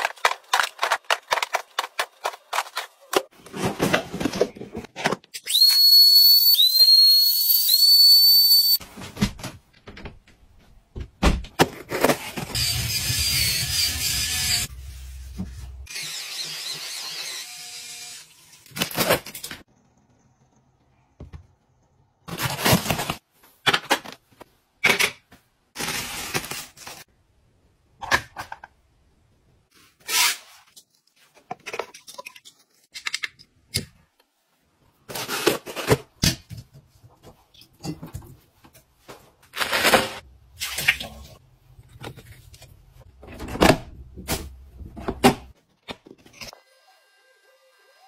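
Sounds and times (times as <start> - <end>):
plastic gadgets rustling and clicking: 0.0 - 5.5.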